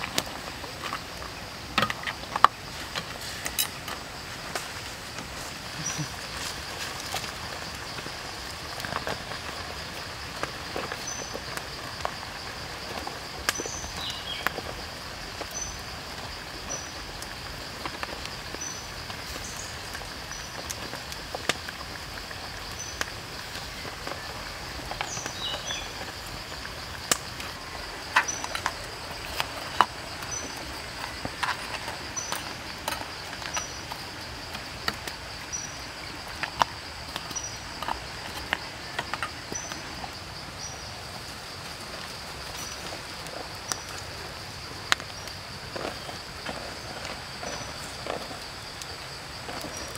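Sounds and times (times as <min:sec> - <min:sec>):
high insect drone: 0:00.0 - 0:49.9
insect chirps: 0:00.0 - 0:49.9
wood fire crackling: 0:00.0 - 0:49.9.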